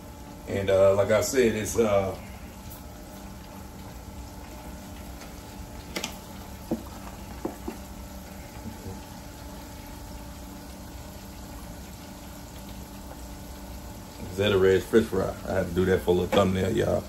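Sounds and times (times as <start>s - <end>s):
meat sizzling in deep fryer: 0.0s - 17.0s.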